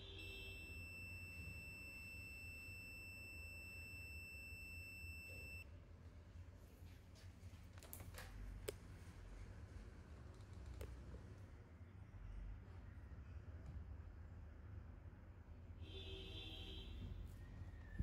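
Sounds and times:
high-pitched electronic beep: 0:00.1 - 0:05.6.

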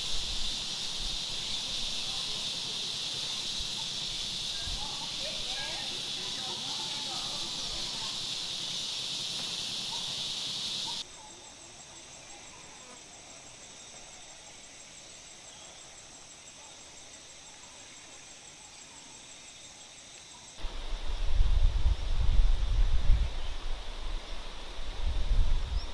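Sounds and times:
high insect hiss: 0:00.0 - 0:25.9
pulsing insect trill: 0:00.0 - 0:25.9.

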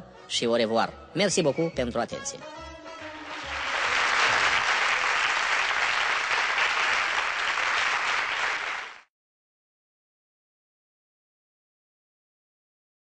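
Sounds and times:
audience applause: 0:03.1 - 0:09.1.

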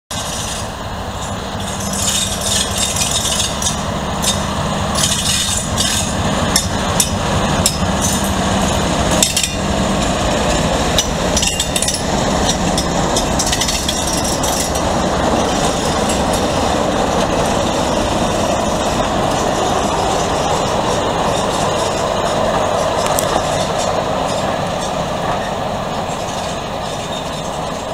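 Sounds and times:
diesel locomotive engines droning: 0:00.0 - 0:27.9
metallic clanks from couplings: 0:00.2 - 0:08.4, 0:09.2 - 0:09.6, 0:11.0 - 0:14.8.

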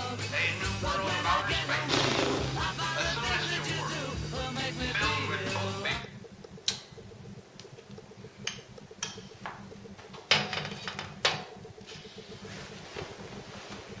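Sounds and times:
background music: 0:00.0 - 0:06.2
fast even ticking: 0:00.0 - 0:14.0
sharp clicks: 0:05.9 - 0:12.4.

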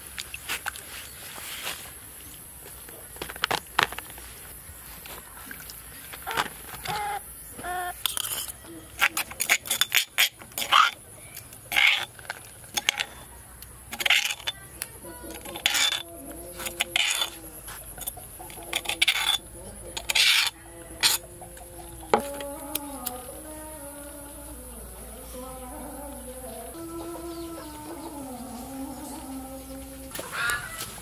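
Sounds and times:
chickens clucking: 0:05.9 - 0:09.6, 0:10.4 - 0:31.0
objects clinking and clattering: 0:08.0 - 0:13.3, 0:13.9 - 0:22.5.

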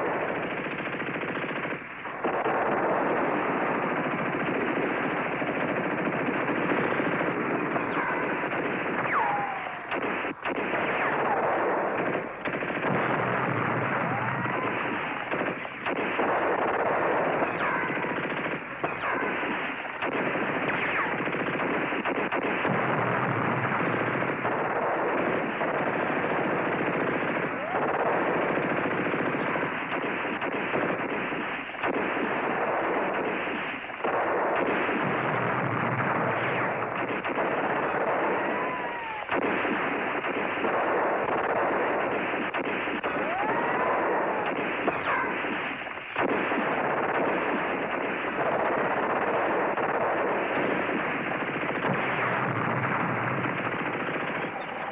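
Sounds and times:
explosions: 0:00.0 - 0:54.9
machine-gun and rifle fire: 0:00.0 - 0:54.9
whistling whines: 0:09.1 - 0:09.9, 0:38.4 - 0:39.3.

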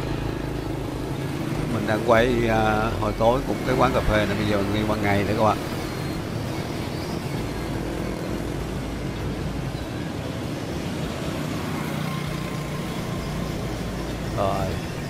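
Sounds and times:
motorbike engine passing close: 0:00.0 - 0:08.2
rumble of passing traffic: 0:00.0 - 0:15.0.

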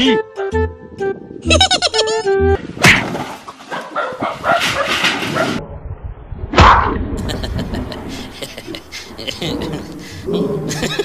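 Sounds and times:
scrabbling on sandy ground: 0:02.6 - 0:05.6
dog barking: 0:03.7 - 0:05.6.

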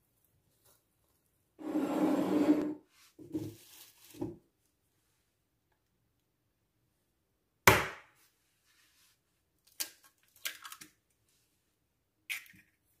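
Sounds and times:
egg shell cracking: 0:09.7 - 0:11.0, 0:12.3 - 0:12.8.

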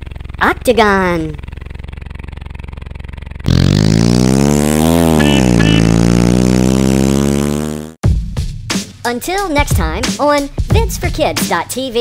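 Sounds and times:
cartoon fire truck engine revving: 0:03.4 - 0:08.0.

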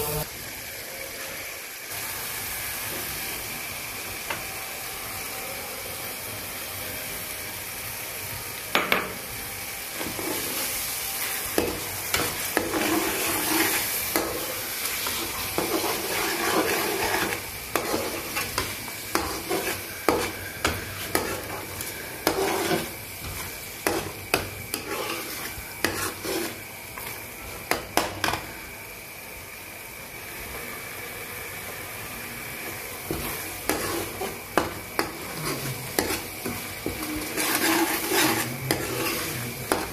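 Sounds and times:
spices sizzling in oil: 0:00.0 - 0:39.9
steel spoon scraping a pan: 0:09.8 - 0:27.2, 0:33.1 - 0:39.9.

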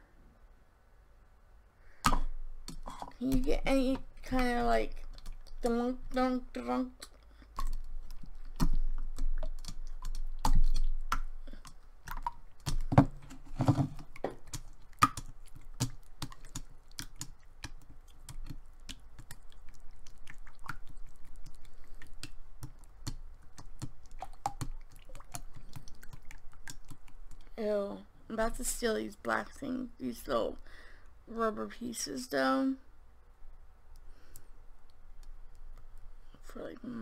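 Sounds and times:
fingers squishing slime: 0:07.0 - 0:13.0, 0:13.9 - 0:27.6.

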